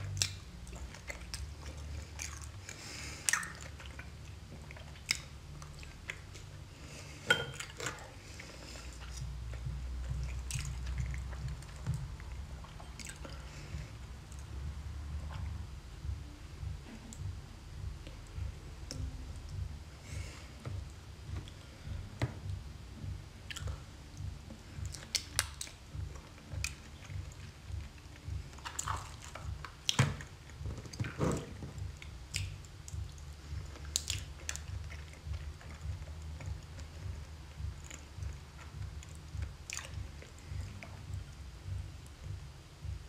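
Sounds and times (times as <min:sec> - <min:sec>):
chewing seafood: 0:00.0 - 0:14.5, 0:23.4 - 0:43.0
wet clicks: 0:23.5 - 0:41.3.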